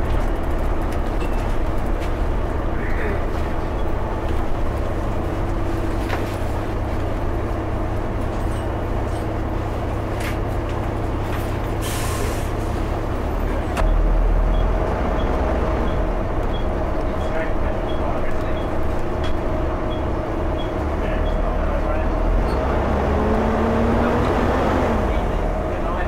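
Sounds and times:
bus diesel engine drone: 0.0 - 26.0
air brake hiss: 11.8 - 12.6.

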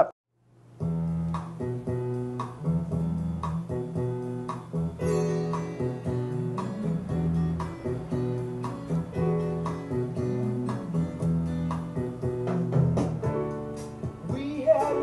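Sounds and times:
acoustic guitar music: 0.8 - 15.0.

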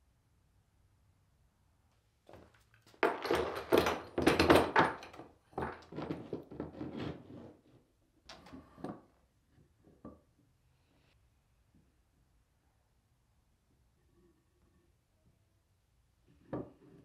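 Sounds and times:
wooden board set down: 2.4 - 7.2
metal pipes clattering on wooden bench: 3.0 - 7.0.

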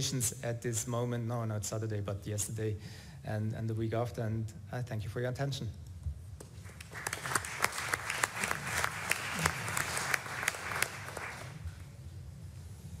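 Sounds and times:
audience applause: 6.6 - 11.6.

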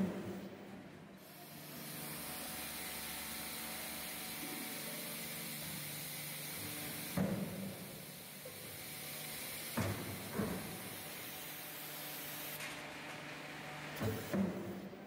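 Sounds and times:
press hissing: 1.2 - 12.6.

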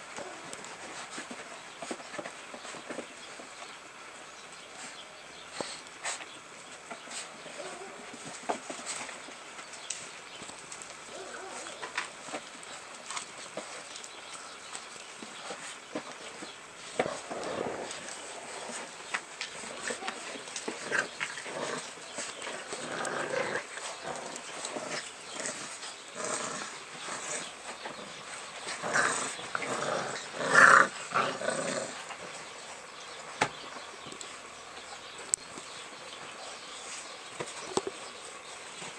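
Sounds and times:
puppies growling: 0.0 - 3.5, 7.1 - 33.5.

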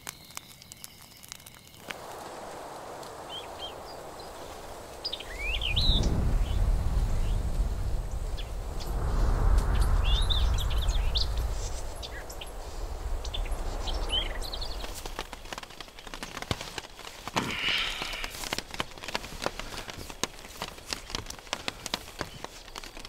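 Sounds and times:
small birds chirping: 0.0 - 23.0
loud low rumble: 2.5 - 15.4.

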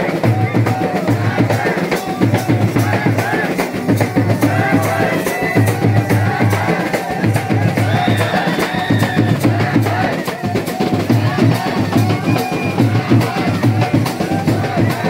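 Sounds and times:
drums beating steady rhythm: 0.0 - 15.0.

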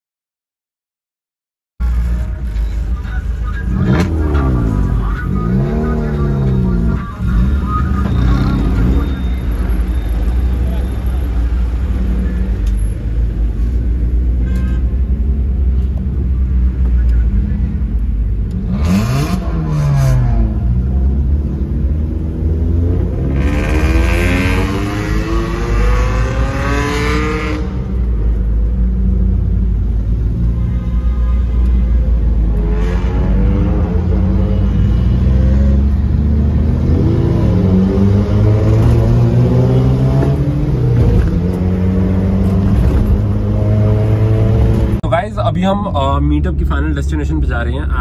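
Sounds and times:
loud car exhausts revving: 18.4 - 28.3.

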